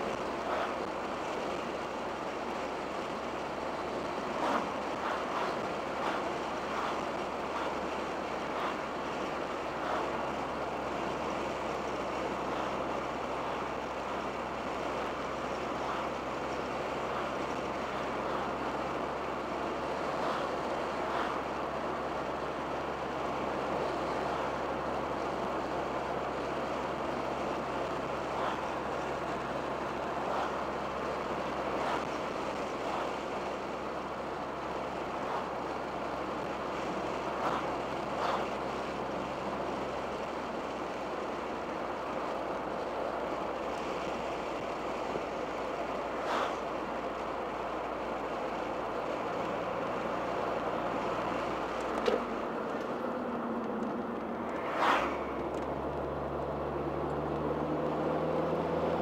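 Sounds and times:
car engine running: 0.0 - 59.0
road and wind noise: 0.0 - 59.0.

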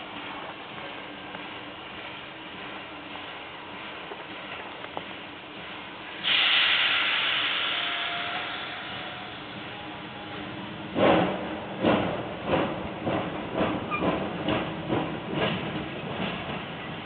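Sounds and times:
steam locomotive exhaust chuffs: 0.0 - 17.0
steam hiss: 1.0 - 13.9.

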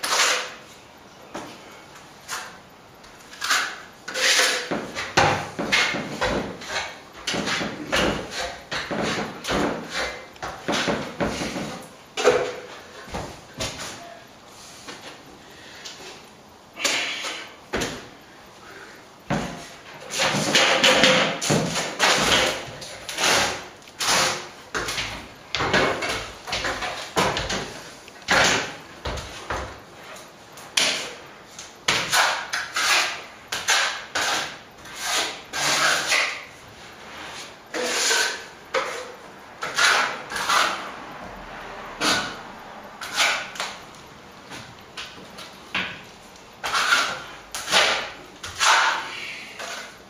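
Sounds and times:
trowel scraping plaster: 0.0 - 0.6, 3.2 - 12.7, 19.5 - 29.2, 31.9 - 40.9, 42.0 - 42.4, 43.0 - 43.8, 46.6 - 50.0.

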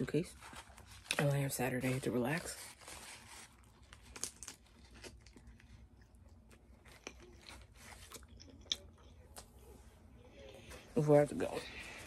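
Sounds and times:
foil wrapper crinkling: 0.0 - 5.9
crunching bites and chewing: 3.4 - 9.6.

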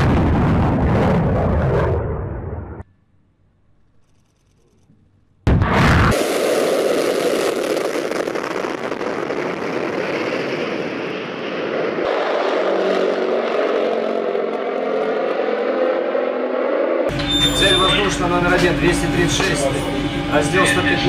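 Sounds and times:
jet afterburner roar: 0.0 - 2.8, 5.5 - 17.2
turboprop engines droning: 0.0 - 21.0.

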